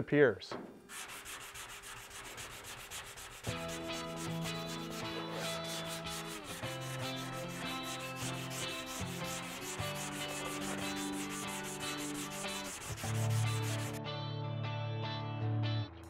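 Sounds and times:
sanding block rubbing on metal: 0:00.9 - 0:14.0
background music of held chords: 0:03.5 - 0:16.0.

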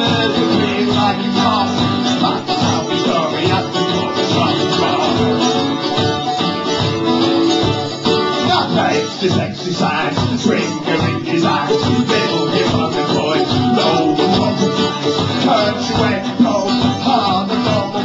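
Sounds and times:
man singing: 0:00.0 - 0:05.9, 0:08.3 - 0:18.0
acoustic guitar strumming: 0:00.0 - 0:18.0
mandolin strumming: 0:00.0 - 0:18.0.

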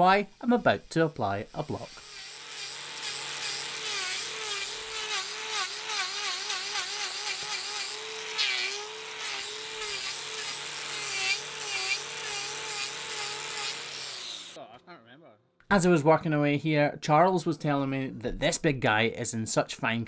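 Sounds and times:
angle grinder grinding hoof: 0:00.4 - 0:14.6.

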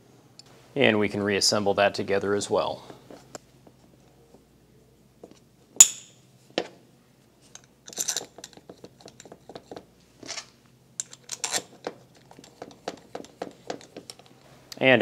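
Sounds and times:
metal parts clicking together: 0:07.6 - 0:09.7, 0:10.3 - 0:14.4
bolts scraping while threaded: 0:07.6 - 0:14.4.

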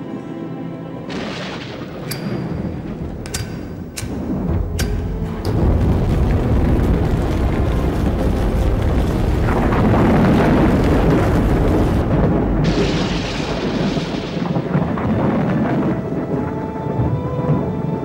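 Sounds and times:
explosion and fire rumble: 0:01.1 - 0:18.0
sharp hissing rush: 0:11.4 - 0:14.8.

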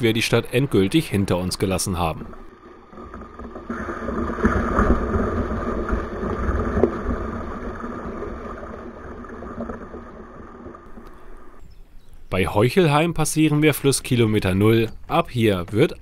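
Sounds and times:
water rushing down a chute: 0:02.9 - 0:11.0.

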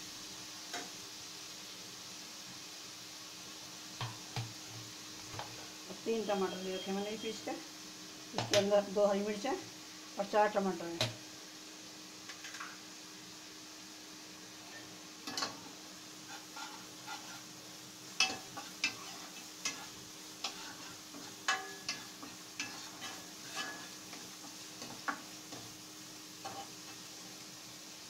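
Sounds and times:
faint sizzle: 0:00.0 - 0:28.0
steel ladle scraping a pan: 0:14.6 - 0:17.6, 0:18.2 - 0:25.7, 0:26.4 - 0:27.4.

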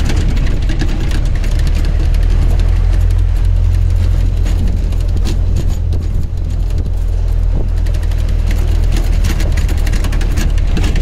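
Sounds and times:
crackling noise: 0:00.0 - 0:11.0
engine and road drone: 0:00.0 - 0:11.0.

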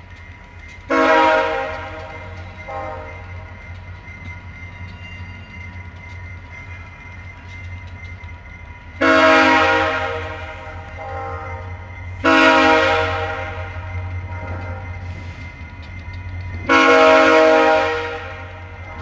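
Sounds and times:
locomotive air horn blasts: 0:00.9 - 0:01.8, 0:09.0 - 0:13.6, 0:16.7 - 0:18.5.

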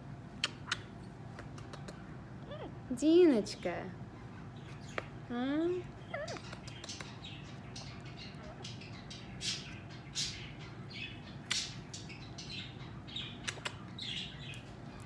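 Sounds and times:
soft hissy kissing sounds: 0:00.3 - 0:02.0, 0:06.3 - 0:07.2, 0:13.4 - 0:13.9.

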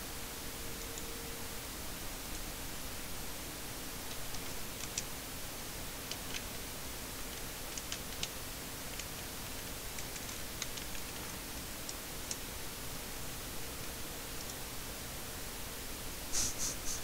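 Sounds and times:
steady hiss: 0:00.0 - 0:17.0
computer keyboard keystrokes: 0:06.0 - 0:06.5, 0:07.3 - 0:09.2, 0:10.0 - 0:11.3.

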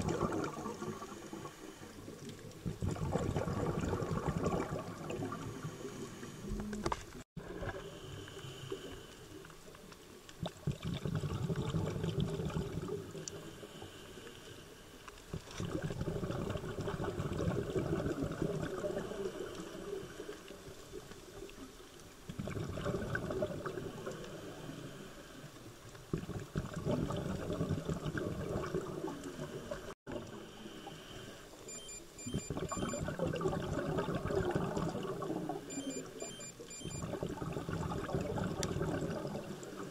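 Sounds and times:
bubbling exhalations underwater: 0:00.0 - 0:01.6, 0:02.2 - 0:05.8, 0:10.4 - 0:13.3, 0:15.3 - 0:19.5, 0:22.3 - 0:24.2, 0:26.0 - 0:30.3, 0:32.4 - 0:35.8, 0:36.9 - 0:39.9
diver breathing through regulator: 0:07.8 - 0:09.4.

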